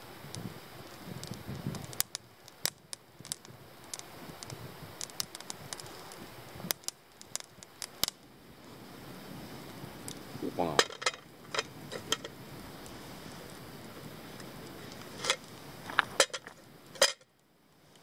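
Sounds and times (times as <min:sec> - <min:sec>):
campfire crackling: 0:00.0 - 0:18.0
firewood popping: 0:00.1 - 0:08.8, 0:09.9 - 0:17.5.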